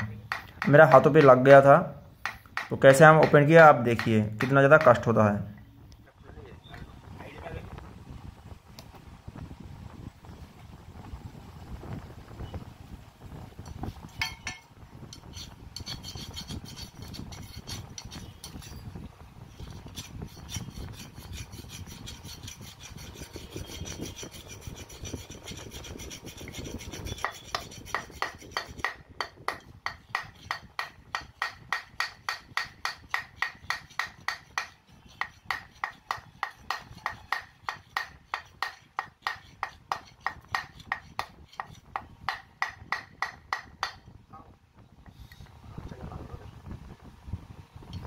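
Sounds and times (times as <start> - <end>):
rough scraping and rubbing: 15.2 - 18.9, 19.5 - 29.0
hammer blows on wood: 23.2 - 44.0.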